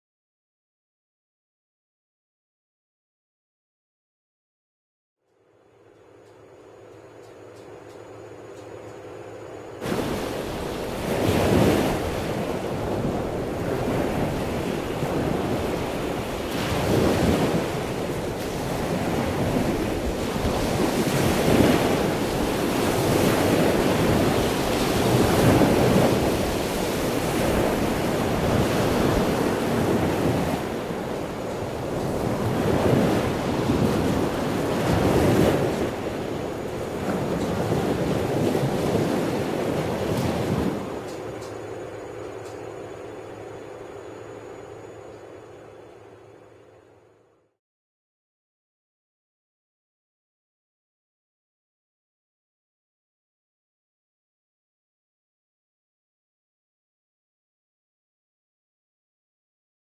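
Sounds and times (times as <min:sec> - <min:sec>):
waves breaking: 0:09.8 - 0:42.5.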